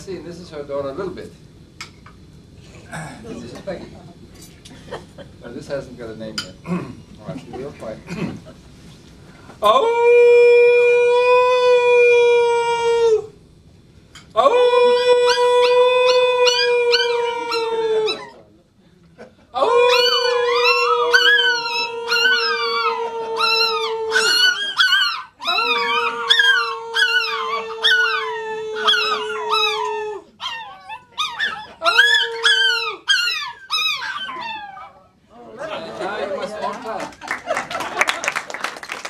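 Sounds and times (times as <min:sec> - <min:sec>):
people howling: 0:09.7 - 0:13.3, 0:14.4 - 0:18.4, 0:19.6 - 0:34.8
dogs howling: 0:14.4 - 0:18.4, 0:19.6 - 0:35.0.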